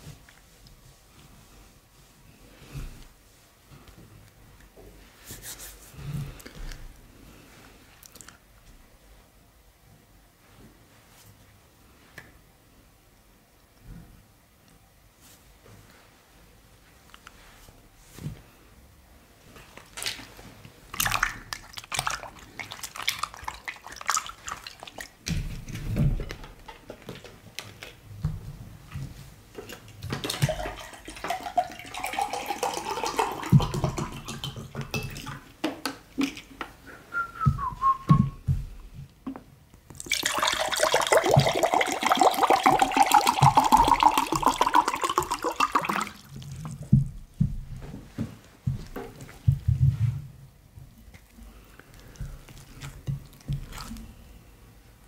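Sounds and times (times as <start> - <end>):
water pouring into glass: 30.2 - 35.4, 40.0 - 46.5.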